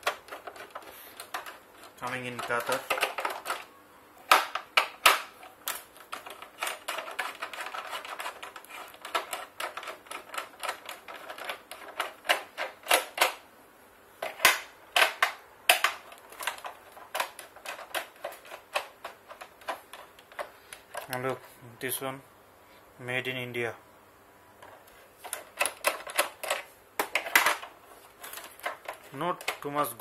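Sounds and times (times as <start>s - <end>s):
screwdriver clicking and scraping: 0.0s - 3.6s, 5.4s - 13.4s.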